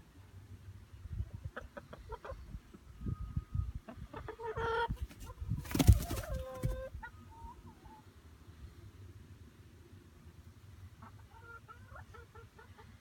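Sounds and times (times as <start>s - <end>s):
hens clucking: 1.4s - 2.8s, 3.9s - 8.0s, 11.0s - 13.0s.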